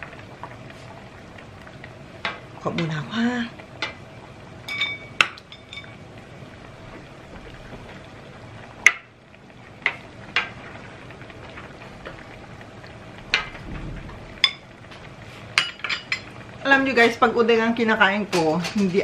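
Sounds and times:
broth bubbling: 0:00.0 - 0:18.3
metal ladle clinking on pot: 0:04.7 - 0:06.0.

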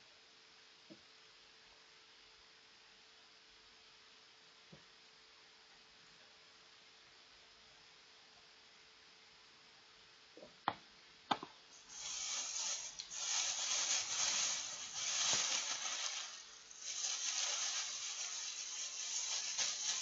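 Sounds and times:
plastic bag crinkling: 0:11.8 - 0:20.0.

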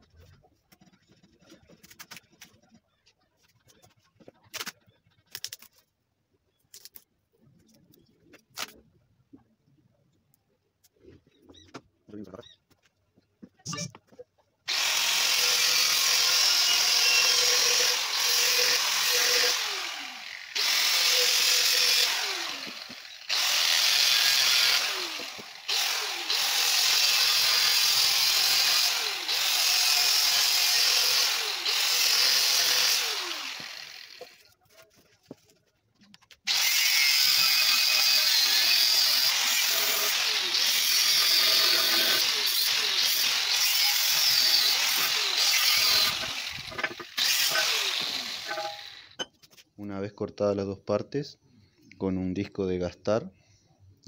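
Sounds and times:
angle grinder cutting steel: 0:14.7 - 0:34.5, 0:36.5 - 0:49.3.

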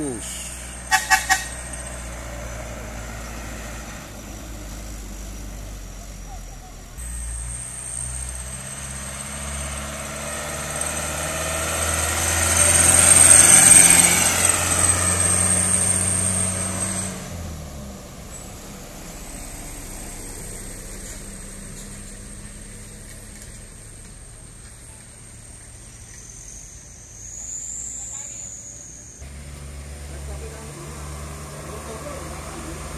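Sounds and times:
background traffic: 0:00.0 - 0:32.9
diesel truck engine climbing: 0:00.0 - 0:32.9.

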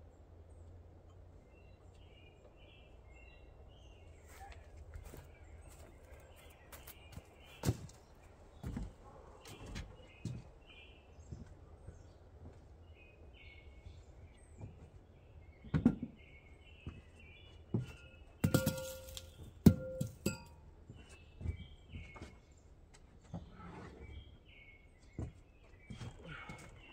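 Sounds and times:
birds chirping: 0:00.1 - 0:26.9
knocks and thumps: 0:15.6 - 0:16.2, 0:17.8 - 0:20.5.

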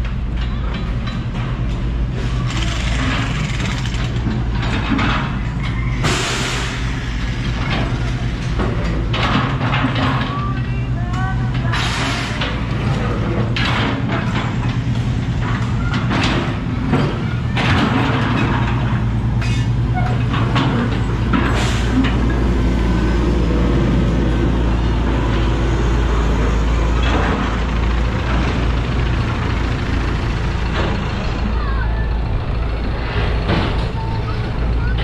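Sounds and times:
metal knocks and clatter: 0:00.0 - 0:06.2, 0:07.4 - 0:10.4, 0:11.6 - 0:22.5
diesel engine droning: 0:00.0 - 0:35.0.

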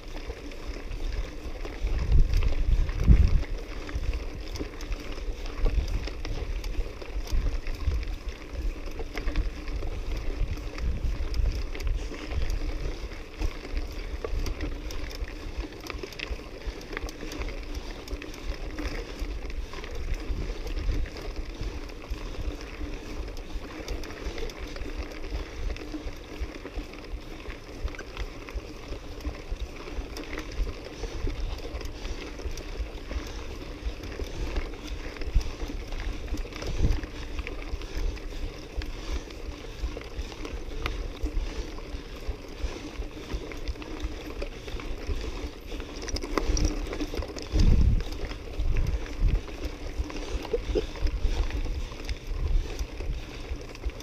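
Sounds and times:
bike rattling over bumps: 0:00.0 - 0:54.0
steady low rumble: 0:30.4 - 0:54.0.

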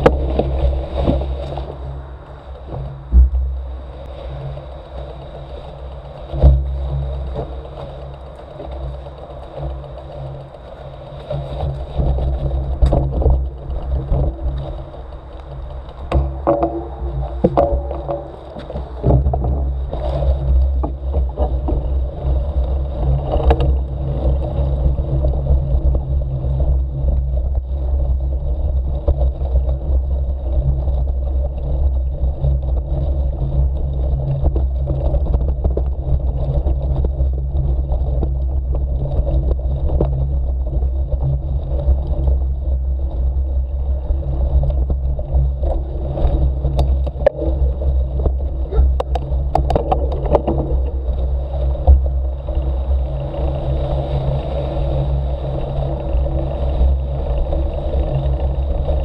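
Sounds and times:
motorcycle engine at low revs: 0:02.6 - 0:04.4, 0:15.6 - 0:29.4, 0:30.5 - 0:55.1.

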